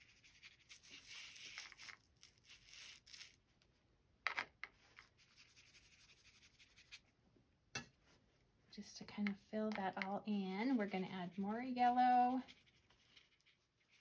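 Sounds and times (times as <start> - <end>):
paintbrush strokes on paper: 0.0 - 3.1, 4.8 - 7.1, 10.1 - 14.0.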